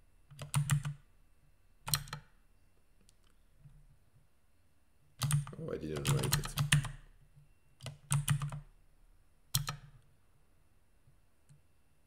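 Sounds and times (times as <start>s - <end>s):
keyboard key presses: 0.3s - 1.0s, 1.9s - 2.3s, 5.2s - 7.0s, 7.8s - 8.7s, 9.6s - 10.0s.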